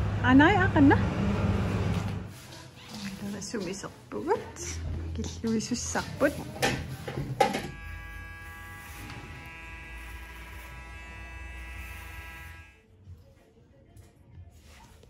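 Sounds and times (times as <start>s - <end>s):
electric hair clippers buzzing: 7.5s - 12.8s.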